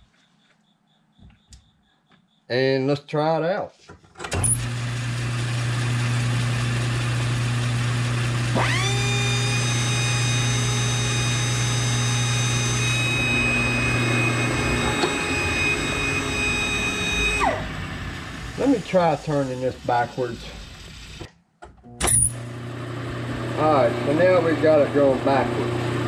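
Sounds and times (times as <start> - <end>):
pencil grinder whining: 4.3 - 21.3
metal lathe humming: 4.5 - 21.3.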